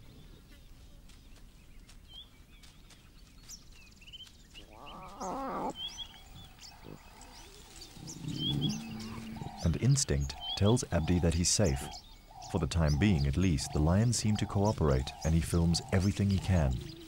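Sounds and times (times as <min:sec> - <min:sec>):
faint bird chirps: 0:00.0 - 0:17.0
lion growling: 0:06.8 - 0:10.0.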